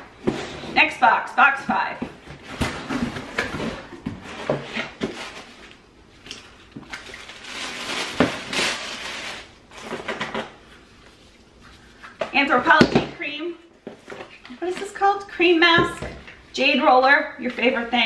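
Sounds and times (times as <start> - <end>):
paper and cardboard rustling: 1.7 - 13.1.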